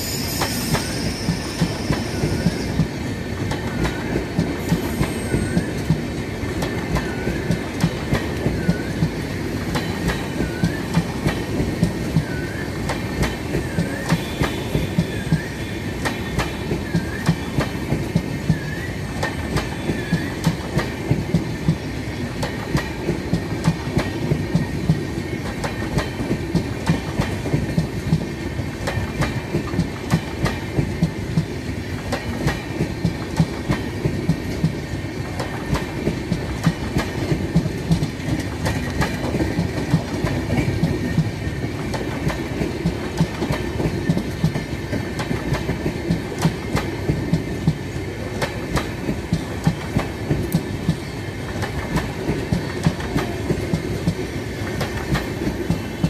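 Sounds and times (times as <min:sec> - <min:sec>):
train wheels clattering over rail joints: 0:19.2 - 0:56.0.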